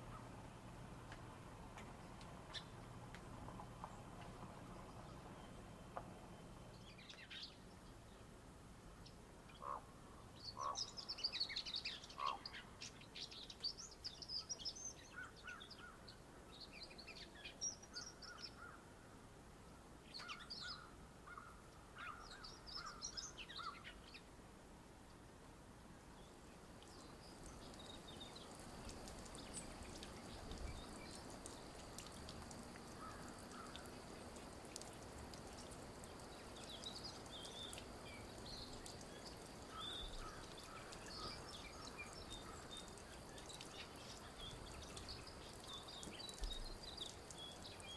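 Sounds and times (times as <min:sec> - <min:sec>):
faint outdoor background: 0:00.0 - 0:47.9
small birds chirping: 0:10.4 - 0:18.8, 0:20.1 - 0:24.3, 0:26.2 - 0:47.9.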